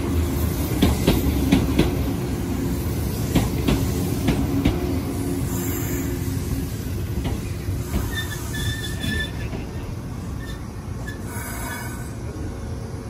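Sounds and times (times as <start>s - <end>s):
train wheels rumbling on rail: 0.0s - 13.0s
high wheel squeals: 7.8s - 12.2s.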